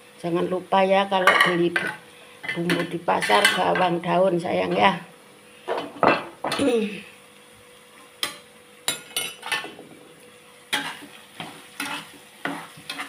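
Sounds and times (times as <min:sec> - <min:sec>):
spice paste frying: 0:07.4 - 0:13.0
metal spoon scraping a wok: 0:10.7 - 0:13.0.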